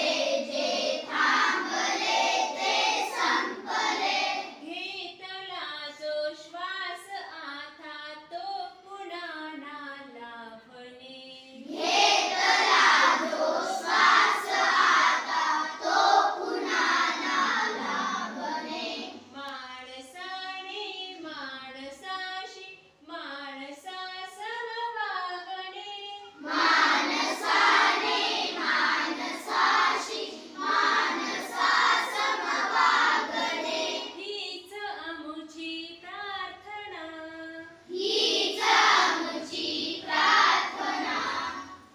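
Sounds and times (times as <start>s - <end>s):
children singing in unison: 0.0s - 4.6s, 11.6s - 19.3s, 26.3s - 34.2s, 37.8s - 41.9s.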